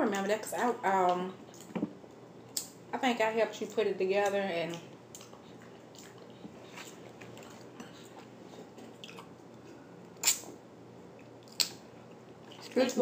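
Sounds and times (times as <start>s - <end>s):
quiet chewing: 1.4s - 1.9s, 4.2s - 13.0s.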